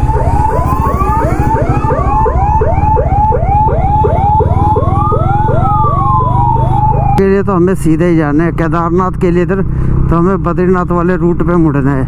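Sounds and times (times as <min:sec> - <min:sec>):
siren wail: 0:00.0 - 0:07.4
siren yelp: 0:00.0 - 0:07.4.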